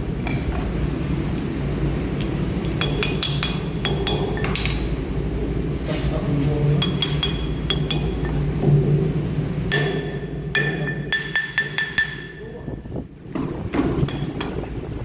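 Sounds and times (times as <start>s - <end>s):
low machinery hum: 0.0s - 15.0s
hammer striking metal: 2.7s - 4.9s, 6.8s - 8.8s, 9.7s - 12.6s.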